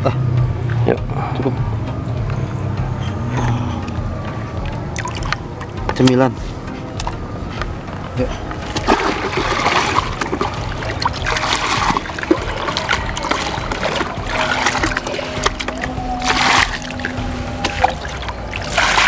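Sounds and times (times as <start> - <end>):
bucket splashing in pond water: 4.6 - 6.1, 8.5 - 19.0
water running out of bucket: 8.7 - 19.0.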